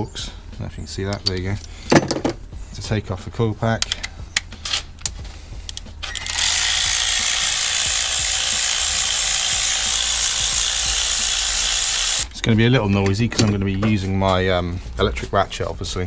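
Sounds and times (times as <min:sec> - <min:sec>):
tools clicking: 0:03.8 - 0:12.3
cordless electric ratchet running: 0:06.0 - 0:12.3.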